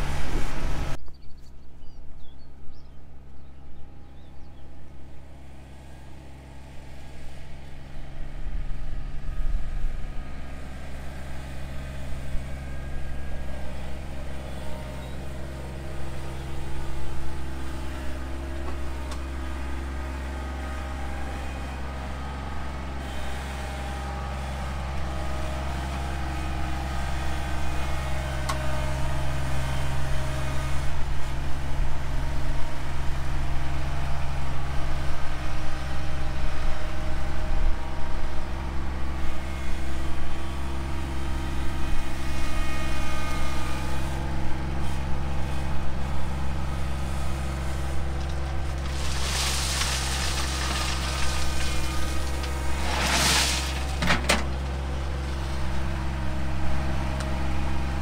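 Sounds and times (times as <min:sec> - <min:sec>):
diesel tractor engine running: 0:00.0 - 0:58.0
rock spilling from bucket: 0:48.2 - 0:54.7.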